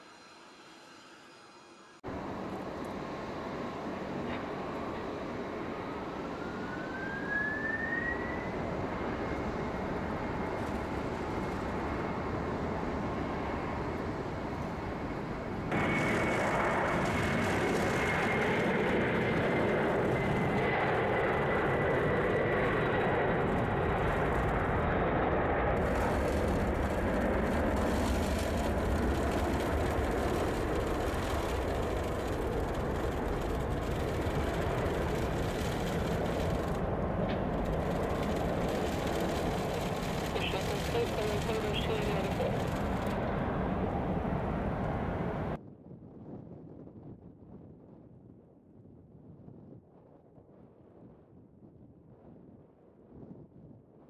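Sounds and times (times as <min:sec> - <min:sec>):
jet engines roaring: 0:00.0 - 0:45.6
jet engine whine: 0:00.0 - 0:54.0.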